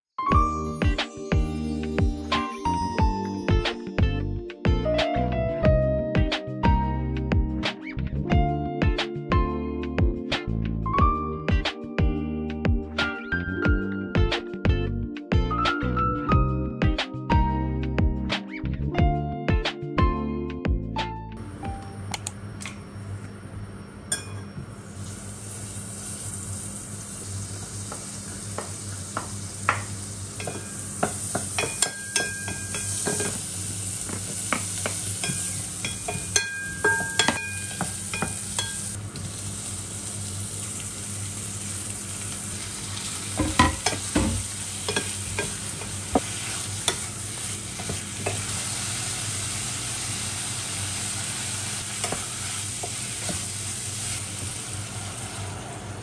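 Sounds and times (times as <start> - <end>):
onion sizzling in oil: 24.1 - 56.0.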